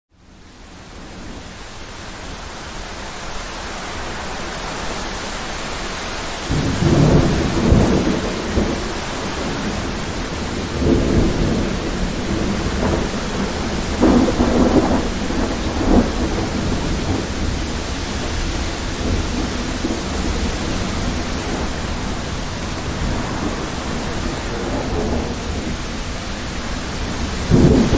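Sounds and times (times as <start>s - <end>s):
steady rain hiss: 0.2s - 27.9s
thunder rumbling: 6.4s - 27.9s
sharp thunder crack: 6.5s - 25.8s, 27.5s - 27.9s.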